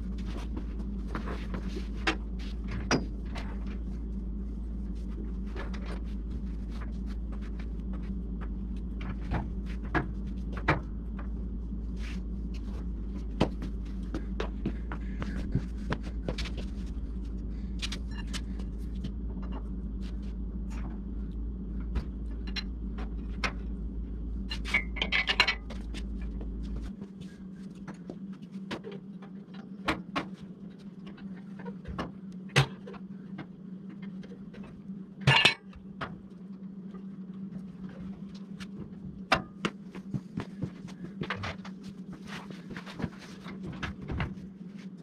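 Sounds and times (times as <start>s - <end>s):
deep drone: 0.0s - 45.0s
steady hum: 0.0s - 45.0s
metallic clinks and scrapes: 35.3s - 35.7s.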